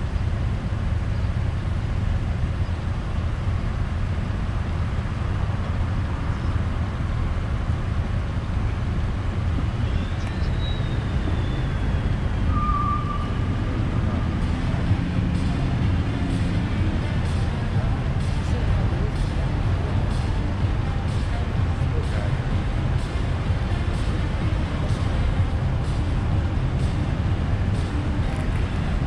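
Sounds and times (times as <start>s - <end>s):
car engines idling: 0.0s - 29.0s
faint high-pitched tone: 12.5s - 13.4s.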